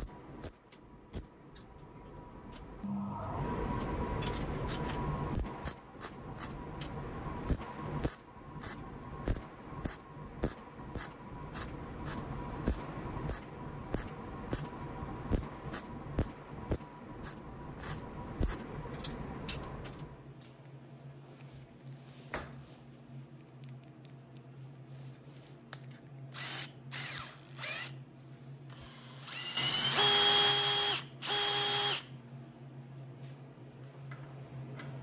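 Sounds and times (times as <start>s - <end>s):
welding arc crackling and popping: 7.5s - 11.7s.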